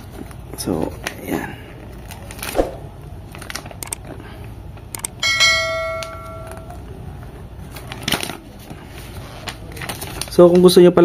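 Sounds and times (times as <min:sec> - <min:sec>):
bell-like chime: 0:05.2 - 0:06.8
paper leaflet rustling: 0:07.6 - 0:10.8.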